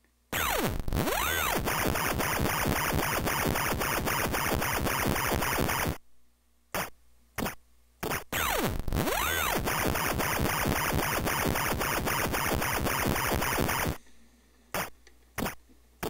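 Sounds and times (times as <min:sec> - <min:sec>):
electronic pulsing loop: 0:00.4 - 0:06.0, 0:08.3 - 0:14.0.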